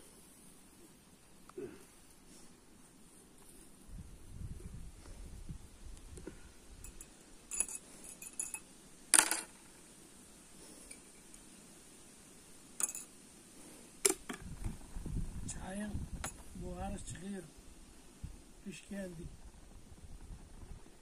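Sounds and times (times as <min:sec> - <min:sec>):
tea glasses and spoons clinking: 0:06.8 - 0:08.7, 0:12.8 - 0:13.1.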